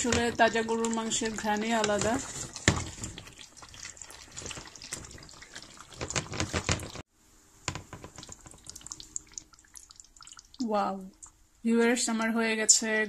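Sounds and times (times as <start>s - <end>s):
wooden spatula stirring: 0.0s - 7.0s, 7.7s - 10.6s
curry bubbling in a pot: 0.0s - 7.1s, 7.8s - 11.4s.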